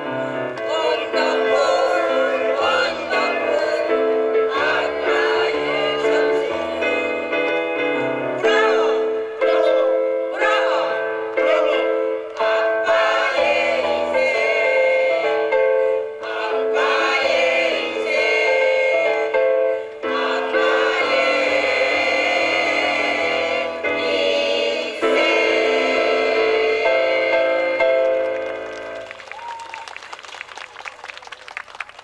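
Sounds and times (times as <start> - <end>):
mixed choir singing in harmony: 0.0 - 28.2.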